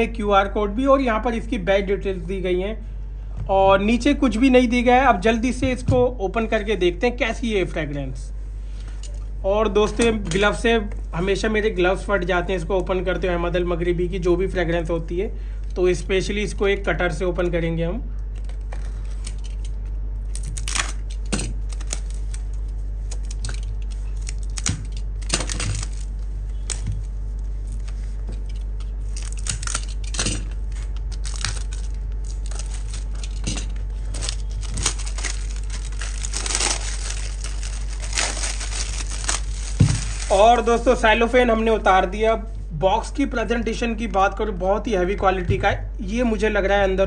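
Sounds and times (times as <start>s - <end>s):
cellophane crinkling and tearing: 18.3s - 41.2s
cutter slitting cellophane: 20.3s - 27.1s, 27.7s - 40.9s.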